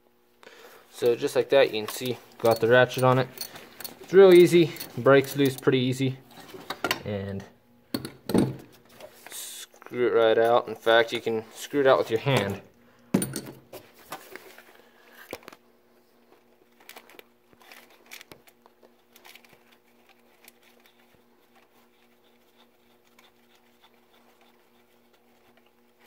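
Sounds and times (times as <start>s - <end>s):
low steady hum: 0.0s - 26.0s
clicks and rustling of hand working: 1.0s - 7.2s.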